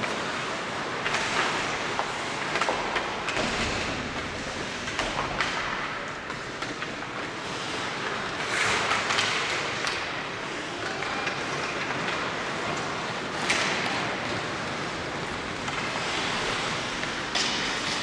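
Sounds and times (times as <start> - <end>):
clacks of sticks and puck: 0.0 - 18.0
skates hissing on ice: 7.3 - 9.8, 14.5 - 18.0.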